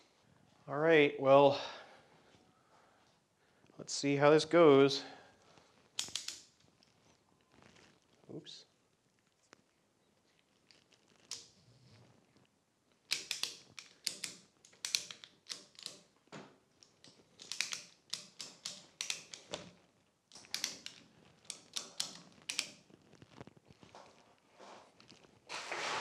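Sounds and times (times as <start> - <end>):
ratchet strap clicking: 6.0 - 6.5, 13.1 - 16.1, 16.8 - 19.7, 20.3 - 22.9.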